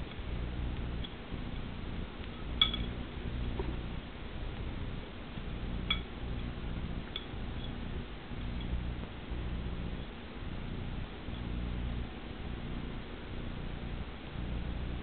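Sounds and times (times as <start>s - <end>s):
low steady hum: 0.0s - 15.0s
light ringing clinks: 2.5s - 3.1s.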